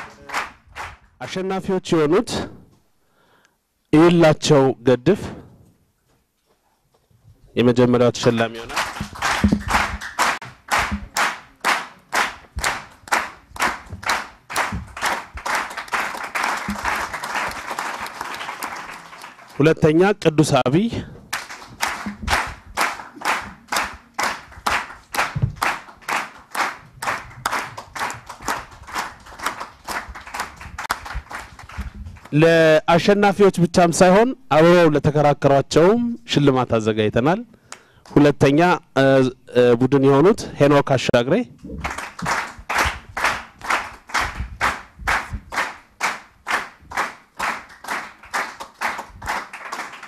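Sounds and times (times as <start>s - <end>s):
audience clapping in rhythm: 0.0s - 1.6s, 8.2s - 32.8s, 41.6s - 50.0s.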